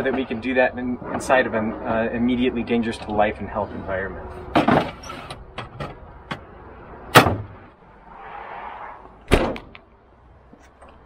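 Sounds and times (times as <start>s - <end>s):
metal door slamming shut: 7.1s - 7.6s, 9.3s - 9.7s.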